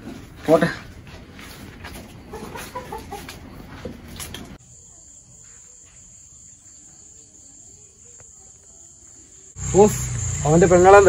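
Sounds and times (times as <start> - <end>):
cricket chorus chirring: 4.2 - 11.0.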